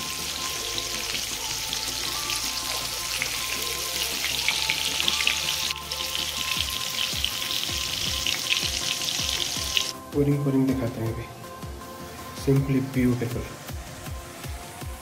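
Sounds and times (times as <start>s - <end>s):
chicken deep-frying in hot oil: 0.0s - 9.9s.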